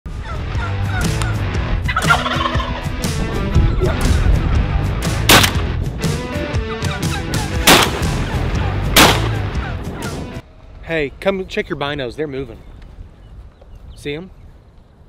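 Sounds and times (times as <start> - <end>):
turkeys gobbling: 0.2 - 2.8, 6.6 - 10.2.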